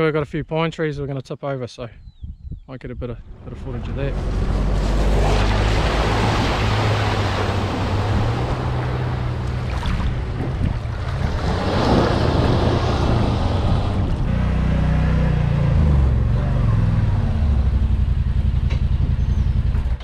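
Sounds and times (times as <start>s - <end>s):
water splashing and rushing: 3.3s - 14.3s
utility vehicle engine running: 3.3s - 20.0s.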